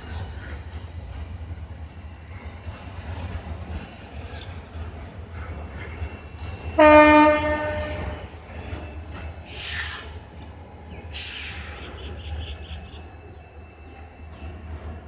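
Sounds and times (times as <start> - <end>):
freight train rumbling past: 0.0 - 15.0
locomotive horn blast: 6.8 - 8.3.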